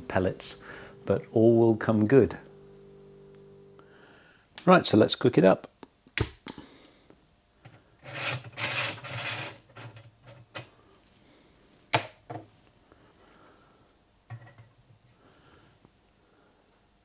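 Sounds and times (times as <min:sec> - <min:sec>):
pot scraping on metal grid: 0:08.0 - 0:10.0.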